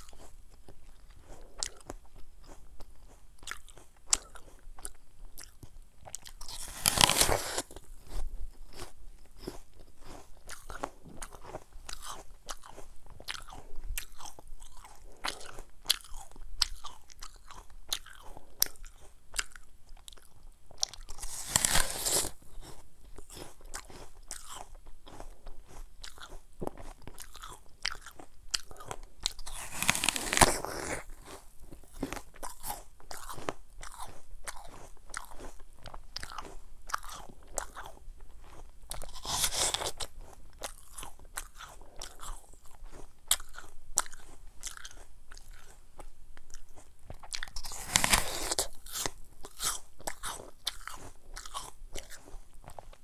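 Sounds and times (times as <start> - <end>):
apple crunching: 0.0 - 53.0.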